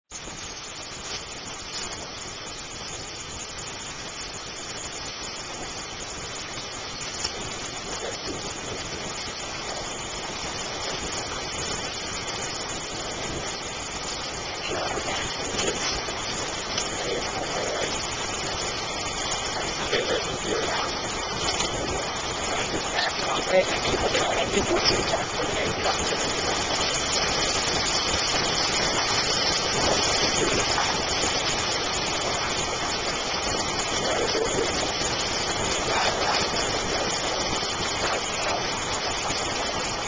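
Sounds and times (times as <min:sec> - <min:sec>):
stream water rushing: 0:09.2 - 0:40.0.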